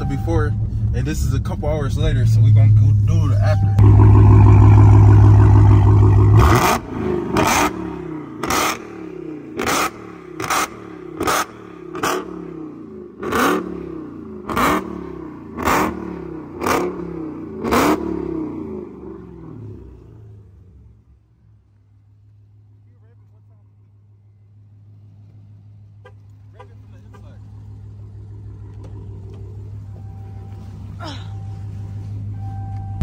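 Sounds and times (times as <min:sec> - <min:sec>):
car engine revving: 0:00.2 - 0:21.2, 0:24.7 - 0:31.0
exhaust backfire cracks: 0:03.8 - 0:09.0.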